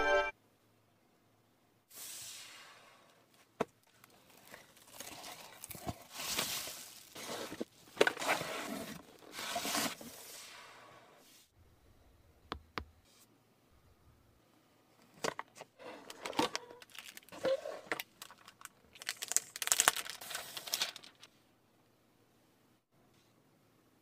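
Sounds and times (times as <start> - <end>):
packaging crinkling and rustling: 3.8 - 10.1, 15.4 - 21.3.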